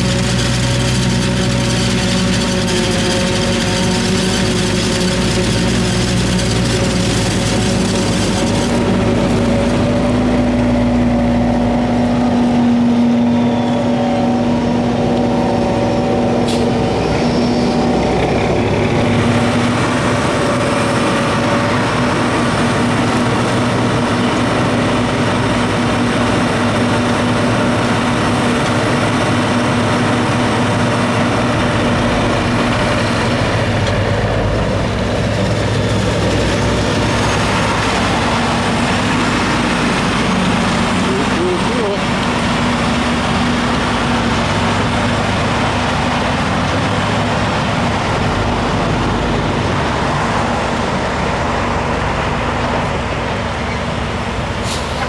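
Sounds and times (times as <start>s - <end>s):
forage harvester droning: 0.0s - 55.0s.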